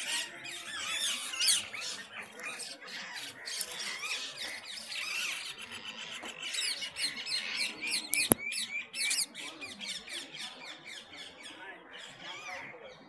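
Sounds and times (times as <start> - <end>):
birds chirping and squawking: 0.0 - 13.0
sharp click: 8.1 - 8.4.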